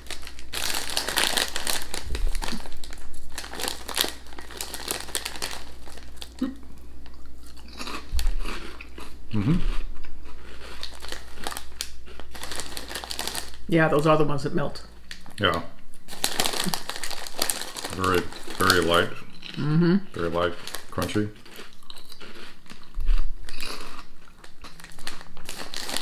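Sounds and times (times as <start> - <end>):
crisp packet crinkling: 0.0 - 6.4, 10.4 - 13.7, 15.1 - 19.2, 20.2 - 22.8, 23.4 - 26.0
people crunching snacks: 0.0 - 13.7, 15.1 - 26.0.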